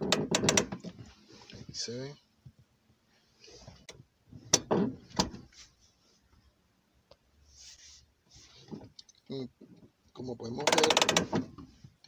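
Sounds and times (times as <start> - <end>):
handbrake lever clicks and clunks: 0.0 - 1.0, 3.9 - 5.4, 10.6 - 11.6
handbrake rattle: 0.0 - 1.0, 3.9 - 5.5, 10.5 - 11.7.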